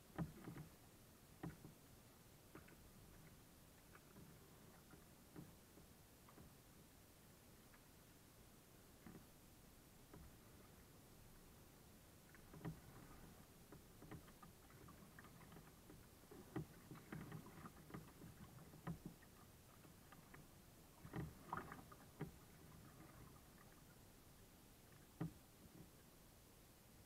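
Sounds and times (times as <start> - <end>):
paddle strokes splashing: 0.0 - 8.0, 8.8 - 26.2
light knocks and clicks: 0.1 - 0.7, 1.4 - 1.8, 2.5 - 6.6, 12.3 - 23.7, 24.9 - 26.0.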